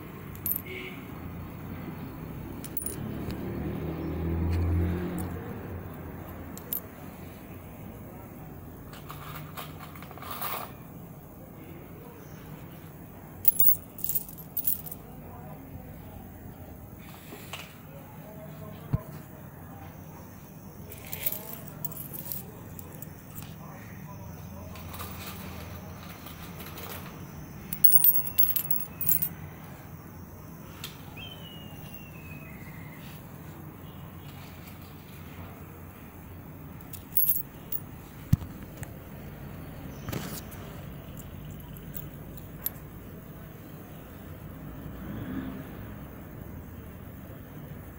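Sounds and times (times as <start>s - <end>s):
coins clinking on a stone floor: 0.3s - 0.9s, 2.5s - 3.6s, 4.3s - 5.4s, 6.1s - 7.0s, 13.4s - 15.0s, 20.9s - 23.6s, 27.7s - 29.3s, 31.8s - 32.1s, 36.8s - 37.8s, 41.1s - 43.0s.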